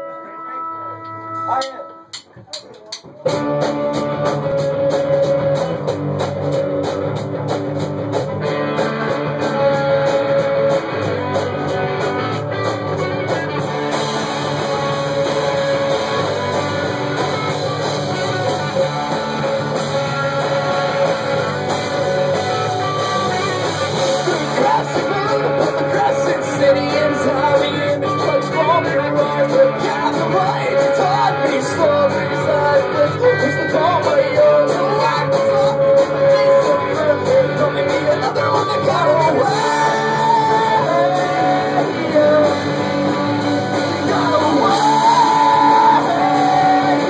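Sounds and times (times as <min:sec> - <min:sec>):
live rock band playing: 0:00.0 - 0:47.0.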